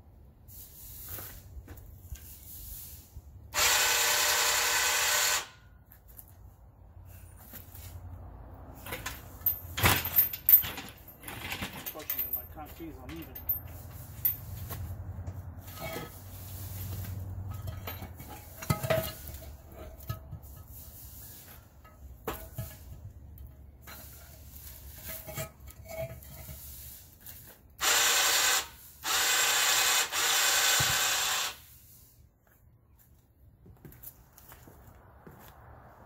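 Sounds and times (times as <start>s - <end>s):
electric winch running: 3.6s - 5.6s, 27.8s - 31.6s.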